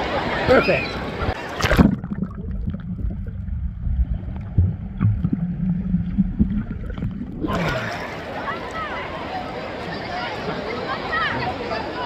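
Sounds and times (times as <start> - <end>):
underwater churning rumble: 1.3 - 8.5
underwater gurgles and bubbles: 1.3 - 8.5.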